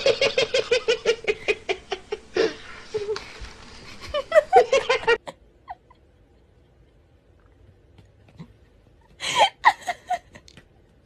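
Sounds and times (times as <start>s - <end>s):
person laughing hard: 3.9s - 5.9s, 9.2s - 10.5s.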